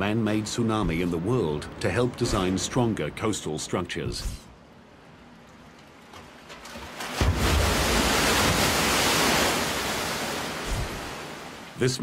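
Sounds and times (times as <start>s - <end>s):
rush of water and spray: 6.6s - 12.0s.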